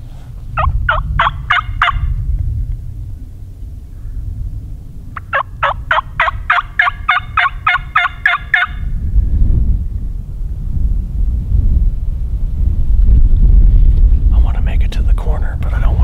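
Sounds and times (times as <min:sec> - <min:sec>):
low rumble: 0:00.0 - 0:16.0
turkey call yelps: 0:00.6 - 0:02.1, 0:05.2 - 0:08.8.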